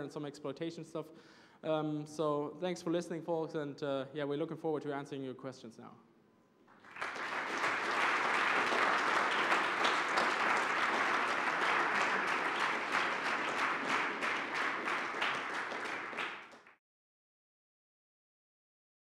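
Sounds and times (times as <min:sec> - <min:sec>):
audience applauding: 0:06.7 - 0:16.8.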